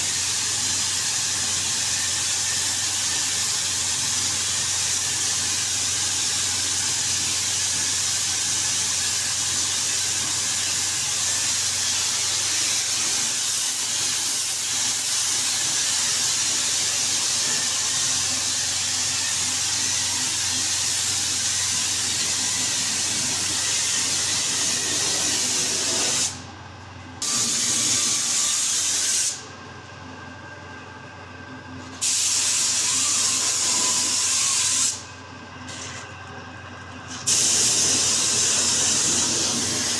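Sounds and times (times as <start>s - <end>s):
paint spray gun hissing: 24.0s - 26.4s, 27.2s - 29.4s, 32.0s - 33.6s, 34.2s - 35.0s, 37.3s - 39.9s.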